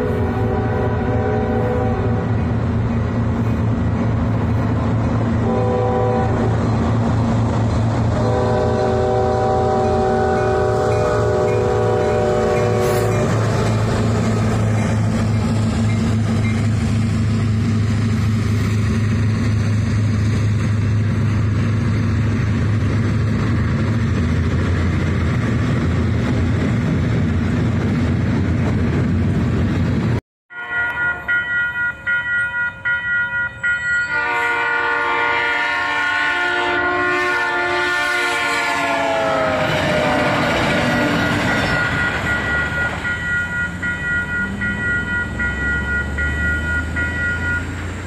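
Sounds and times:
locomotive air horn chord: 0:00.0 - 0:02.4, 0:05.4 - 0:06.6, 0:08.2 - 0:13.6, 0:30.5 - 0:31.4, 0:33.6 - 0:42.2
freight train cars rumbling: 0:00.0 - 0:48.0.

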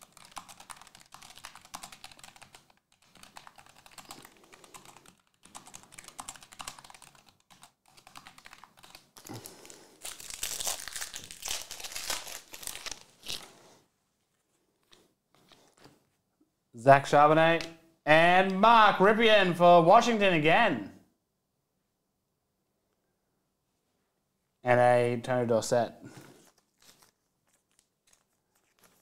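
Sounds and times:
foil wrappers crinkling: 0:09.2 - 0:13.6, 0:26.3 - 0:29.0.

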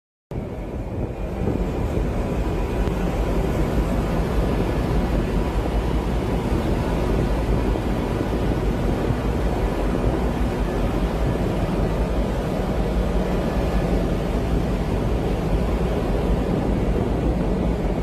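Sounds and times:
tugboat engine drone: 0:00.3 - 0:18.0
wind buffeting microphone: 0:00.3 - 0:18.0.

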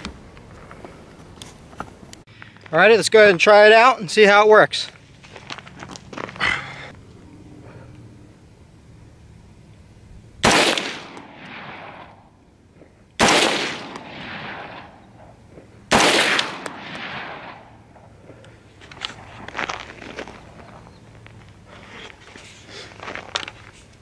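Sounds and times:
rifle shots with echo: 0:10.4 - 0:12.2, 0:13.2 - 0:15.3, 0:15.9 - 0:18.1.

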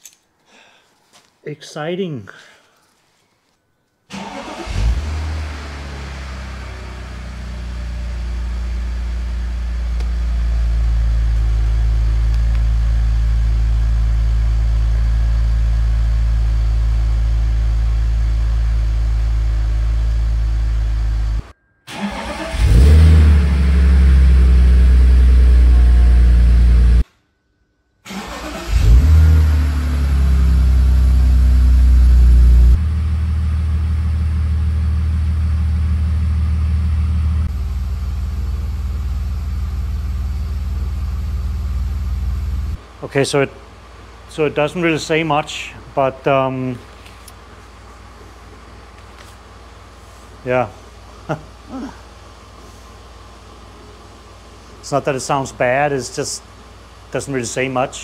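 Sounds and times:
car engine starting and revving: 0:04.1 - 0:15.0, 0:15.6 - 0:27.0, 0:28.1 - 0:39.0
car engine idling: 0:04.1 - 0:27.0, 0:28.1 - 0:42.8.

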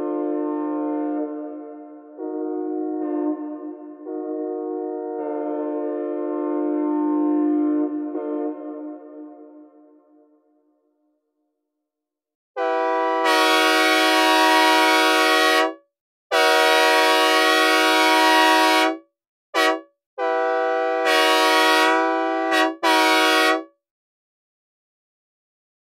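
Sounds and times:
locomotive air horn blasts: 0:00.0 - 0:09.0, 0:12.6 - 0:19.0, 0:19.6 - 0:23.7.

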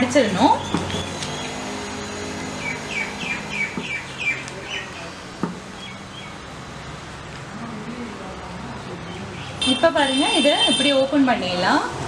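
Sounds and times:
bird chirping: 0:00.6 - 0:01.8, 0:02.4 - 0:06.4
sharp tap: 0:05.4 - 0:05.6.

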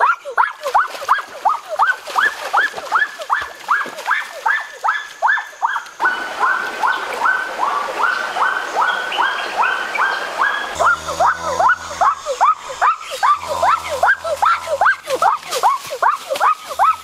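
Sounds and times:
animal call rising in pitch: 0:10.7 - 0:15.4.

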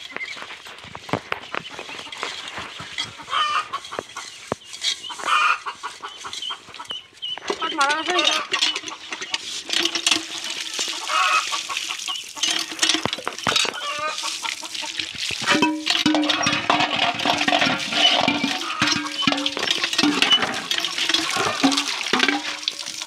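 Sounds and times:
ducklings peeping and calling: 0:00.0 - 0:09.5, 0:10.9 - 0:12.5, 0:13.8 - 0:15.0
bills pecking the ground: 0:00.0 - 0:23.0
water splashing into trough: 0:07.5 - 0:23.0.

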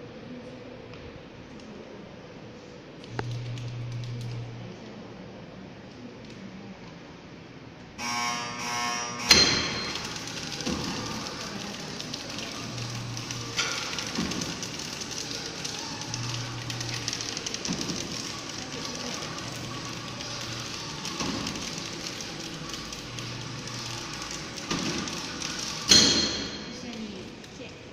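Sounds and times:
packaging machine clatter: 0:09.4 - 0:27.4.

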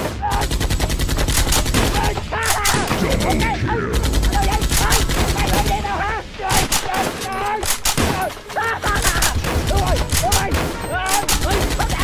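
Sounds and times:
rapid automatic gunfire: 0:00.0 - 0:05.9, 0:08.9 - 0:12.0
voices shouting: 0:01.7 - 0:12.0.

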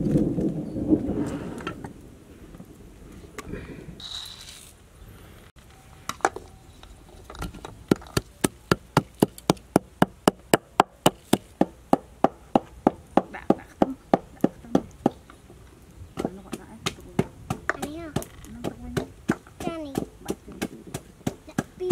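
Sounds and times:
peppercorns poured rattling: 0:04.0 - 0:04.8
pestle knocking in wooden mortar: 0:16.2 - 0:21.9.

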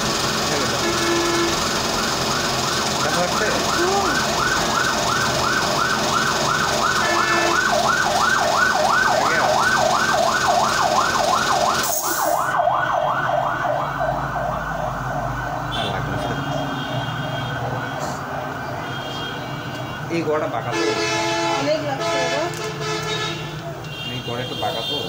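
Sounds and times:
warbling electronic siren tone: 0:02.3 - 0:18.6.

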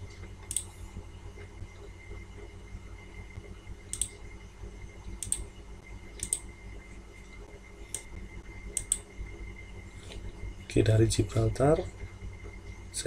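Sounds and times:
low steady hum: 0:00.0 - 0:13.0
computer mouse clicking: 0:00.5 - 0:00.7, 0:03.9 - 0:04.2, 0:05.2 - 0:05.5, 0:06.2 - 0:06.5, 0:08.7 - 0:09.0.

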